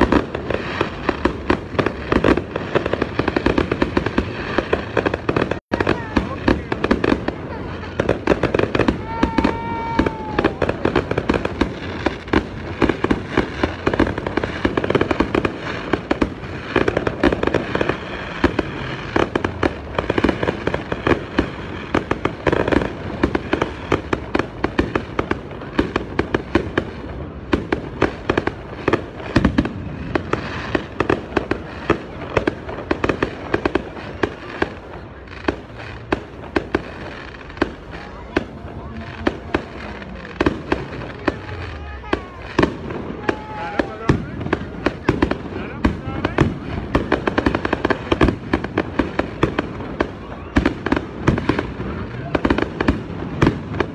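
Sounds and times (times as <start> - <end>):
fireworks bangs and crackles: 0.0 - 53.9.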